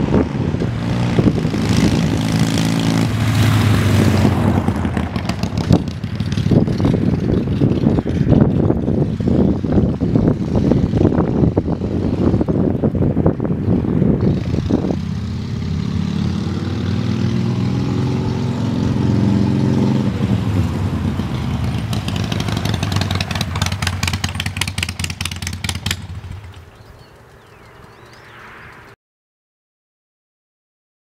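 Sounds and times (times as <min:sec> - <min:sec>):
motorcycle engine passing: 0:00.0 - 0:29.0
crackling exhaust beat: 0:18.9 - 0:28.9.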